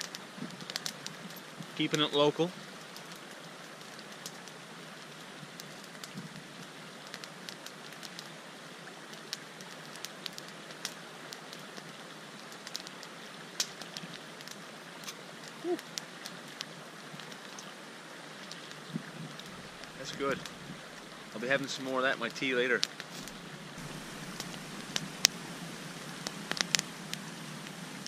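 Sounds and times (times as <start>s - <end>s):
campfire crackling: 0.0s - 28.0s.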